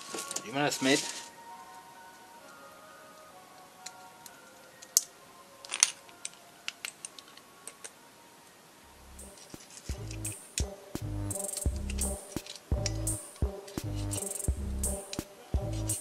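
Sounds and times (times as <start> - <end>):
faint background music: 0.0 - 16.0
music with low beat: 8.9 - 16.0
metallic clicks and taps of tools: 11.4 - 15.3.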